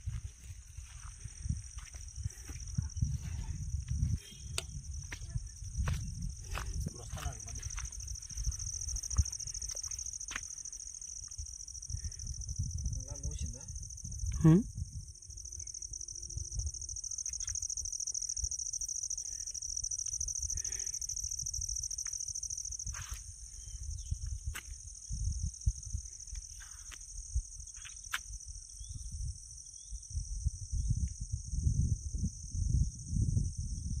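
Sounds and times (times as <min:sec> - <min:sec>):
wind buffeting microphone: 0:00.0 - 0:15.6, 0:22.7 - 0:27.7, 0:28.3 - 0:34.0
high-pitched insect drone: 0:00.0 - 0:34.0.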